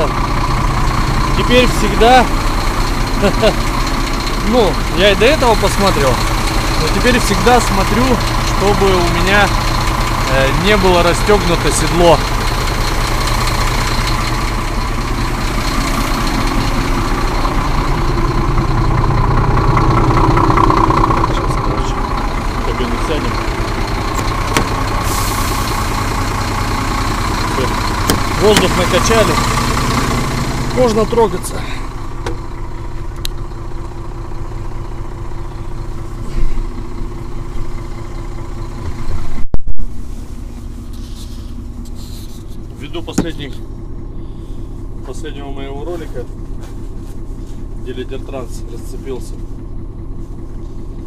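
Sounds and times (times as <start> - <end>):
diesel truck engine idling: 0.0 - 51.0
air brakes building pressure: 24.9 - 26.0.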